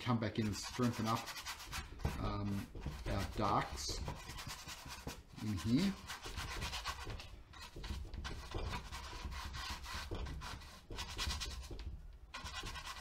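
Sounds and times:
paintbrush scrubbing on canvas: 0:00.2 - 0:13.0.

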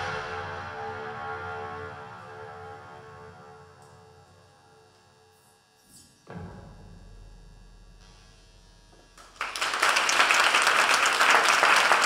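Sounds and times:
low note ringing: 0:00.0 - 0:05.3
audience applause: 0:09.2 - 0:12.0.

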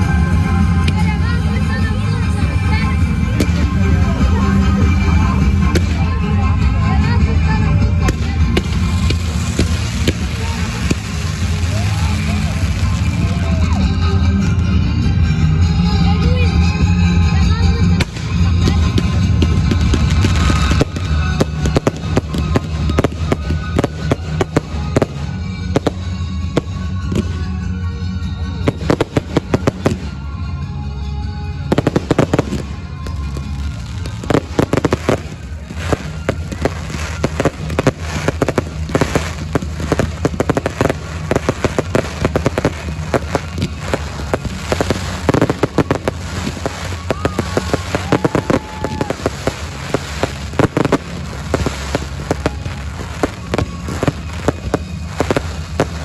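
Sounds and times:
fireworks bangs and crackling: 0:00.0 - 0:56.0.

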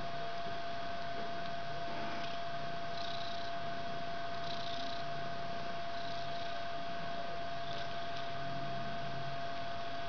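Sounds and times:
electrical hum and hiss: 0:00.0 - 0:10.0
cat purring: 0:01.1 - 0:09.2.

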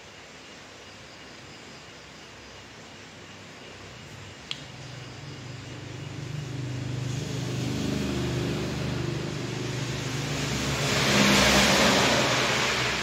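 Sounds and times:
vehicle engine approaching: 0:04.8 - 0:13.0.

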